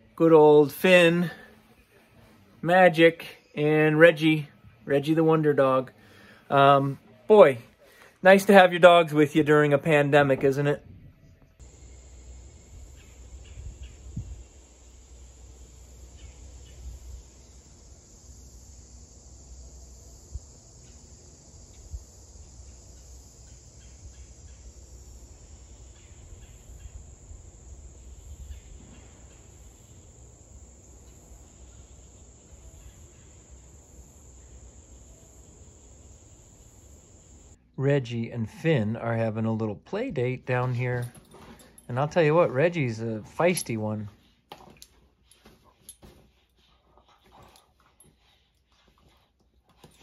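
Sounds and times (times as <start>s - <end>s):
insects droning: 11.6s - 50.0s.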